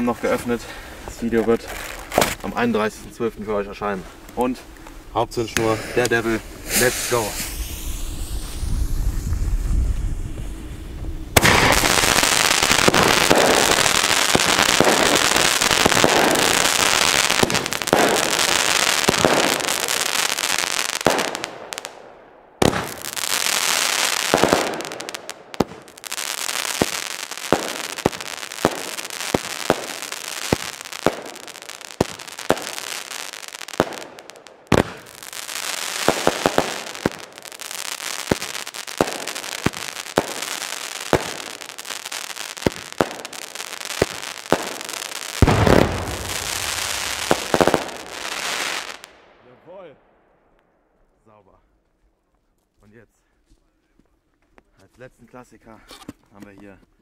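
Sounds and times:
fireworks barrage crackling: 0:00.0 - 0:50.1
sharp firework bangs: 0:01.7 - 0:02.6, 0:05.5 - 0:49.9.

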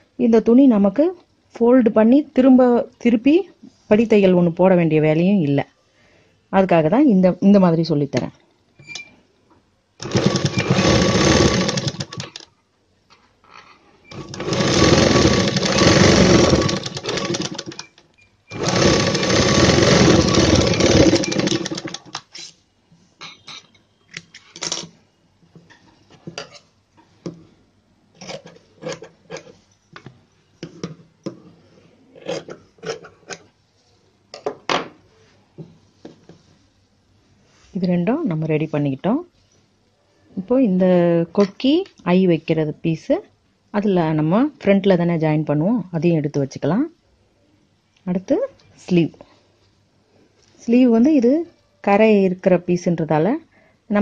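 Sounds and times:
sewing machine stitching: 0:10.0 - 0:12.4, 0:14.1 - 0:22.5.

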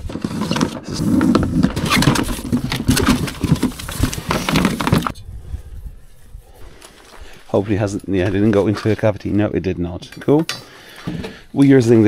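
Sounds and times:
cardboard box rustling and scraping: 0:00.0 - 0:05.2.

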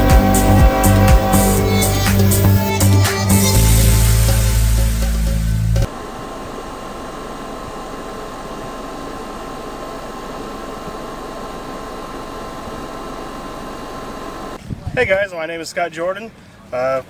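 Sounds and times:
music track: 0:00.0 - 0:05.9.

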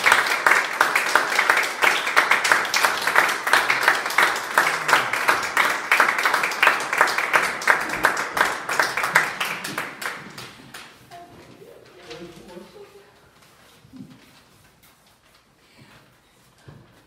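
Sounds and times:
audience applauding: 0:00.0 - 0:11.1.

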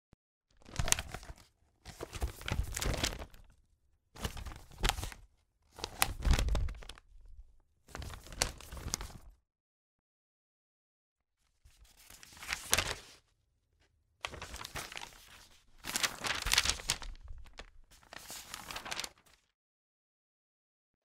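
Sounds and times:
paper rustling and crackling: 0:00.6 - 0:03.6, 0:04.2 - 0:07.3, 0:07.9 - 0:09.3, 0:11.7 - 0:13.2, 0:14.2 - 0:19.5.

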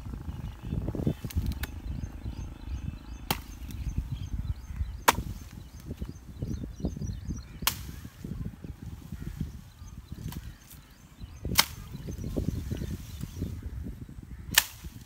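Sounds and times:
wind on microphone: 0:00.0 - 0:15.0
axe chopping a branch: 0:03.2 - 0:03.8, 0:05.0 - 0:06.1, 0:07.6 - 0:08.2, 0:11.4 - 0:12.1, 0:14.5 - 0:15.0.

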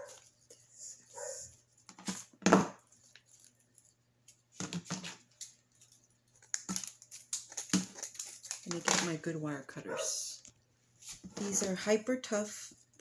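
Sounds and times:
ribbon and artificial flowers rustling: 0:00.0 - 0:06.5.

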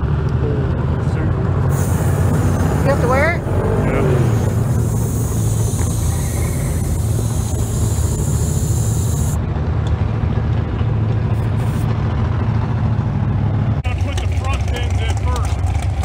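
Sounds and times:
car engine idling: 0:00.0 - 0:16.0
high hiss: 0:04.4 - 0:09.4.

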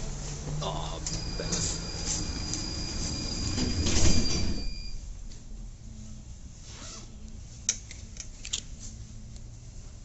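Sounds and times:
tram wheel squeal: 0:01.1 - 0:05.0.

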